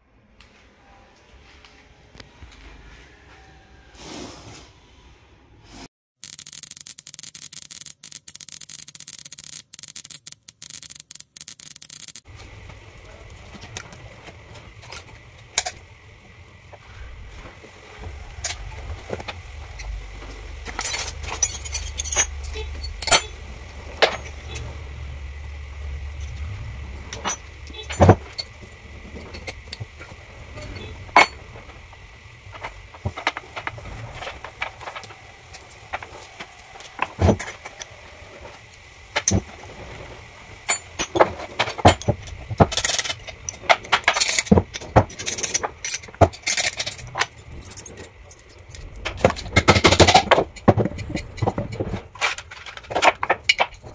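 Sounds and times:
faint steady high tone: 2.6s - 4.0s
low hum: 12.3s - 53.9s
metal clinks of spanners and bolts: 19.7s - 31.7s, 40.6s - 53.9s.

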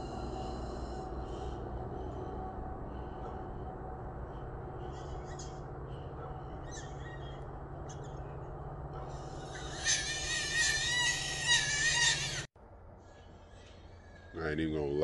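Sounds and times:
steady low hum: 0.0s - 15.0s
faint high animal calls: 6.4s - 8.1s, 9.1s - 12.5s
animal screaming shrilly: 9.2s - 12.5s.

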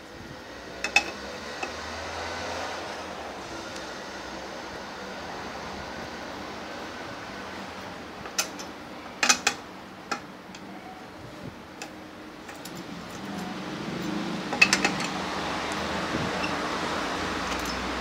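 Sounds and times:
wrench clinking on bolts: 11.8s - 15.2s, 17.4s - 18.0s.

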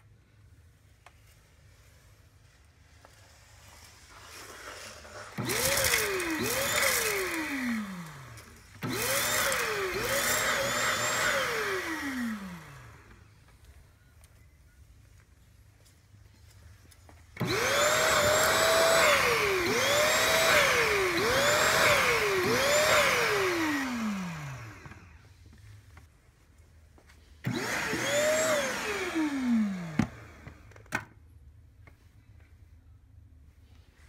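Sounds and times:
suction motor whirring: 4.0s - 13.2s, 17.4s - 25.2s, 27.4s - 30.6s.

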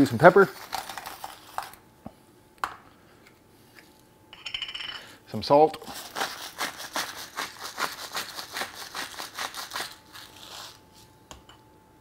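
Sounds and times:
salt grinder crunching: 5.9s - 10.8s.

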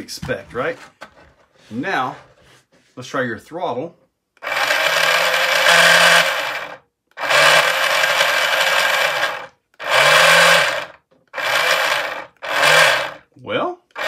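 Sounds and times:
small electric motor whirring: 4.4s - 13.2s.

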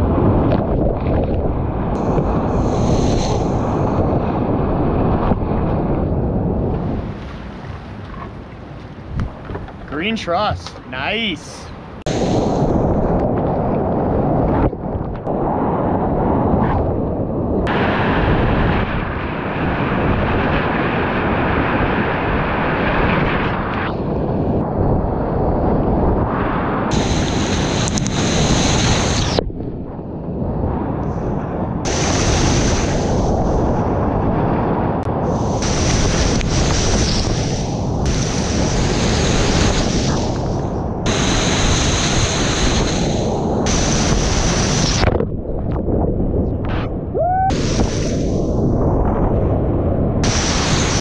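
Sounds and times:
wind buffeting microphone: 0.0s - 51.0s
muffled underwater rush: 24.4s - 51.0s.

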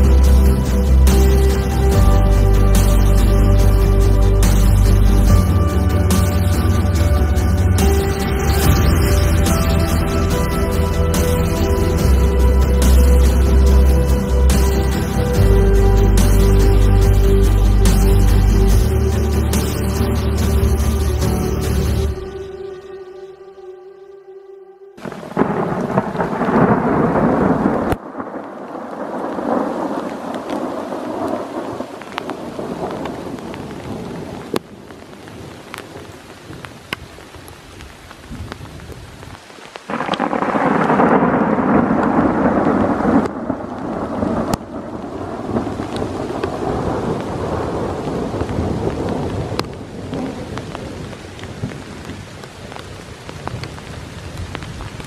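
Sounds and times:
thunder rolling: 0.0s - 22.6s, 25.0s - 35.8s, 39.9s - 52.3s
steady rain: 0.0s - 23.1s, 25.0s - 55.0s
raindrops ticking on device: 25.0s - 55.0s.

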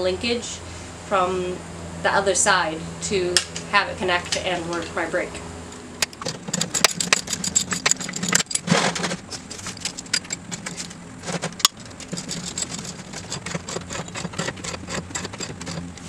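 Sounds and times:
metal wrench clinking on bolts: 6.0s - 8.7s, 9.6s - 10.9s.

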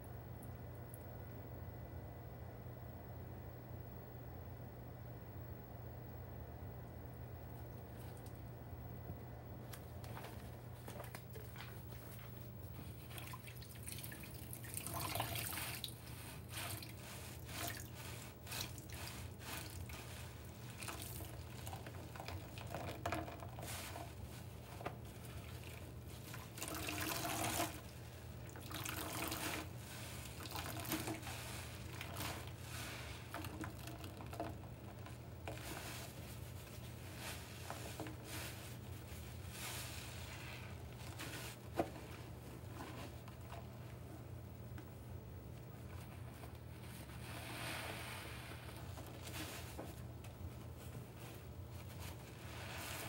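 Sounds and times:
steady low hum: 0.0s - 53.0s
wet sponge squelching: 10.8s - 43.5s, 50.6s - 53.0s
water splashing and dripping in sink: 13.1s - 16.0s, 26.3s - 27.8s, 28.5s - 29.6s, 30.3s - 32.4s, 33.3s - 34.6s.

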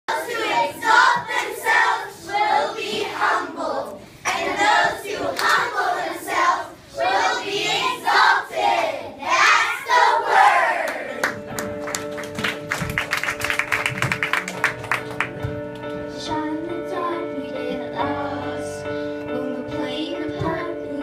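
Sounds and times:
children chanting in unison: 0.1s - 10.9s.

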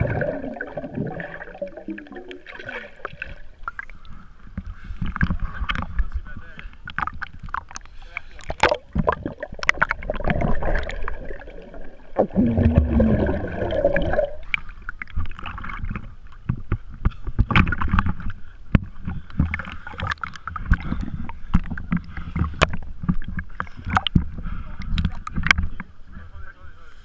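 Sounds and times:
muffled underwater gurgling: 0.0s - 4.0s, 5.1s - 16.2s
water splashing and lapping: 0.0s - 25.8s.

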